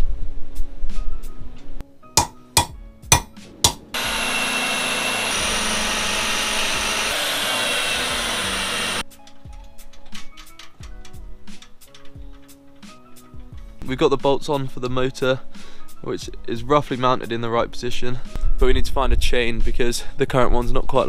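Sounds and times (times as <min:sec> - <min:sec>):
sharp knocks: 0:02.2 - 0:04.0
drill boring into metal: 0:04.0 - 0:09.0.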